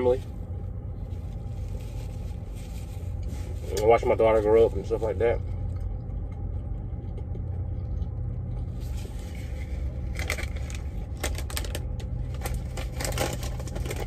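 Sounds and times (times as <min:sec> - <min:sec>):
low cab hum: 0:00.0 - 0:14.0
plastic snack bag crinkling: 0:09.8 - 0:14.0.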